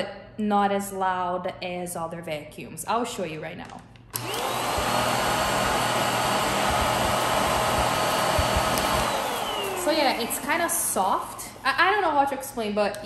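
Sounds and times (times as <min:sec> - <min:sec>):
stick vacuum motor whining: 0:04.1 - 0:11.7.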